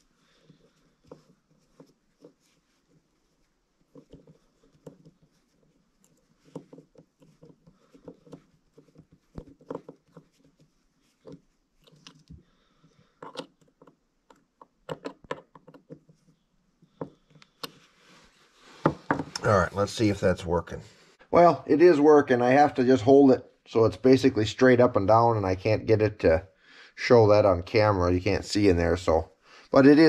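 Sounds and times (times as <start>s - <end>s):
screwdriver clicking and scraping: 3.9s - 12.4s, 13.2s - 16.3s.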